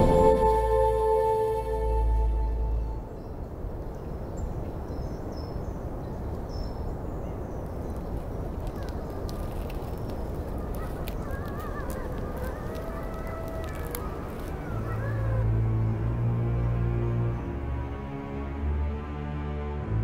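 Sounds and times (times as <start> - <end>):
steady rushing noise: 0.0 - 2.2
wavering animal calls: 10.7 - 15.8.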